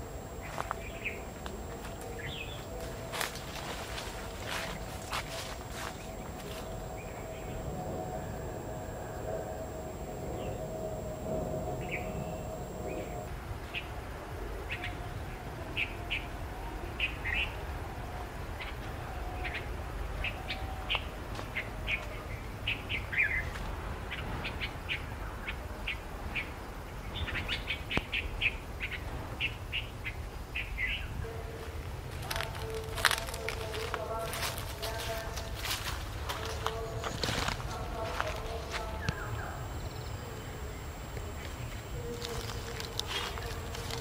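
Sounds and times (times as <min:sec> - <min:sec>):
birds chirping: 0:00.0 - 0:13.8, 0:32.2 - 0:44.0
faint steady hum: 0:00.0 - 0:44.0.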